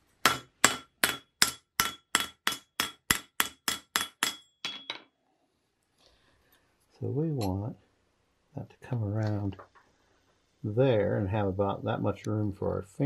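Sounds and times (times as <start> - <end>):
hammer striking iron on anvil: 0.2 - 5.1.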